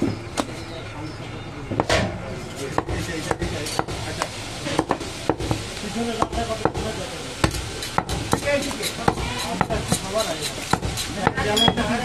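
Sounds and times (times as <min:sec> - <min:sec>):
knife chopping on wooden block: 0:07.4 - 0:11.9.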